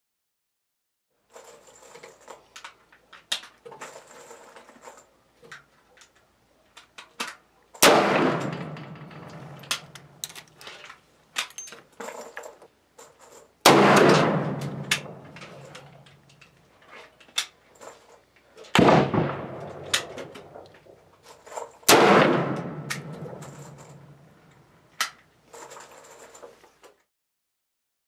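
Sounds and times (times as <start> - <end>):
pistol shots with echo: 7.8 - 9.6, 13.6 - 15.3, 18.8 - 20.6, 21.9 - 23.9.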